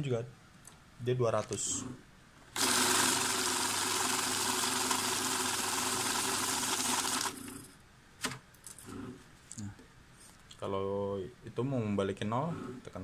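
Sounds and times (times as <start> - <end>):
banknote counting machine whirring: 2.6 - 7.7.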